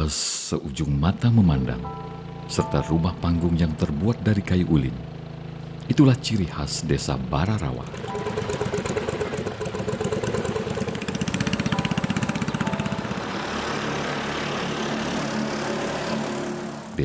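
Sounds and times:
motorboat engine puttering: 0:07.2 - 0:17.0.

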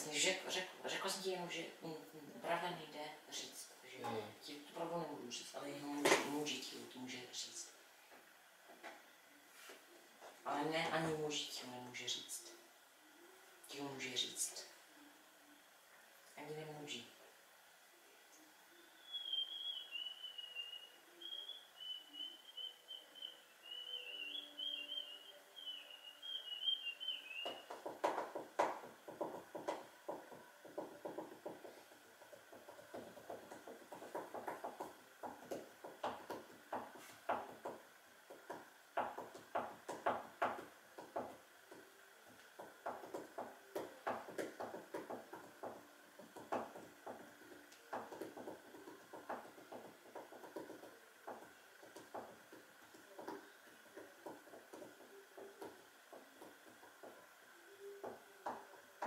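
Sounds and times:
faint high hum: 0:00.0 - 0:33.6, 0:50.8 - 0:59.0.

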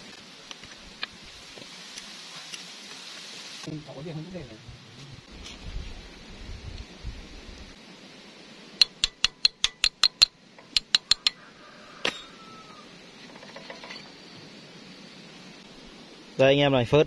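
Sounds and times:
ringing metal taps: 0:08.8 - 0:11.4.

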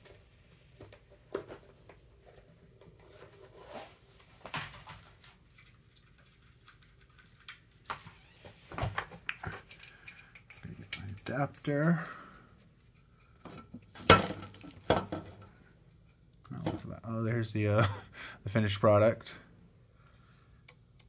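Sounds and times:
small metal parts clinking: 0:09.4 - 0:12.0.

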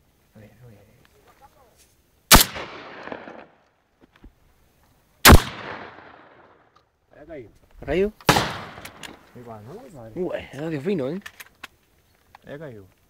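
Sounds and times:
shotgun shots with echo: 0:02.3 - 0:03.5, 0:05.3 - 0:06.4, 0:08.3 - 0:09.0.

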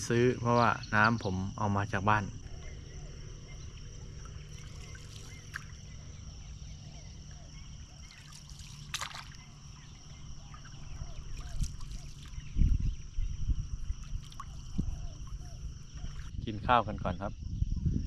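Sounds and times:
insect trilling: 0:00.0 - 0:18.0
paddle splash: 0:04.3 - 0:06.0, 0:08.0 - 0:12.4, 0:14.0 - 0:16.3
water dripping off paddle: 0:08.0 - 0:09.5, 0:14.1 - 0:15.4
paddle stroking through water: 0:08.8 - 0:09.4.

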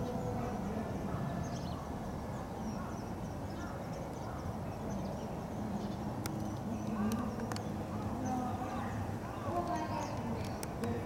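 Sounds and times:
murmur of distant voices: 0:00.0 - 0:11.0
small birds chirping: 0:00.0 - 0:11.0
sharp clicks: 0:09.7 - 0:11.0.

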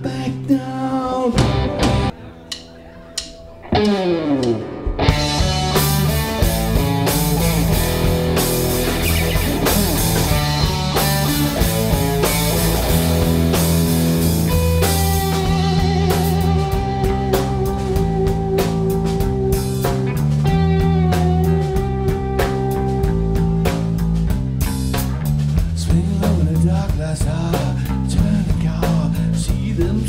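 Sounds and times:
live rock band playing: 0:01.2 - 0:30.0
guitar with sliding notes: 0:01.4 - 0:25.3.

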